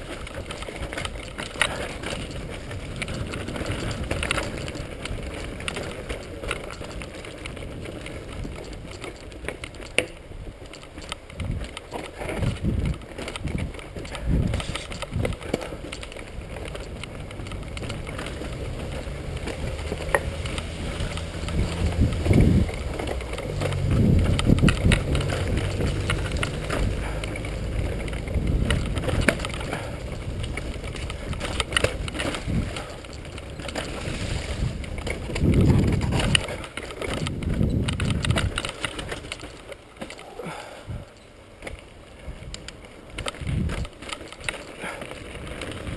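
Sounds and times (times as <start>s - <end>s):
bike rattling with clicks: 0.0s - 45.9s
tyres crunching over stones: 0.0s - 45.9s
heavy thuds over bumps: 11.4s - 39.4s.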